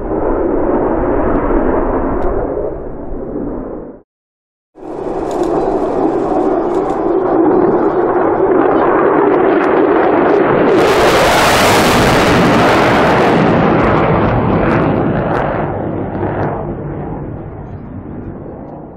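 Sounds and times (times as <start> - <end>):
fighter jet passing overhead: 0.0 - 4.0, 4.8 - 18.9.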